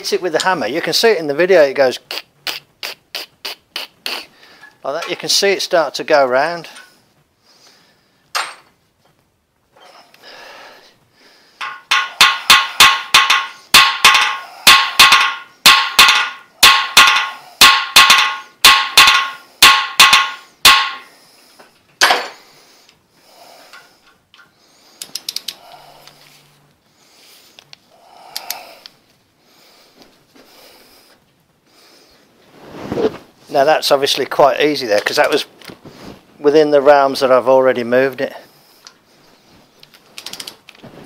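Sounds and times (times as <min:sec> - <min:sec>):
ringing hammer blows on steel: 0:11.6 - 0:21.1.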